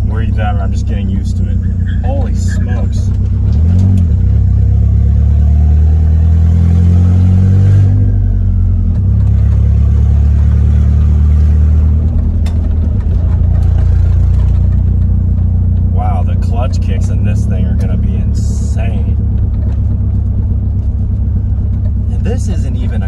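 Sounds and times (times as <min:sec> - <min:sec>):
pickup truck engine revving: 0:00.0 - 0:23.0.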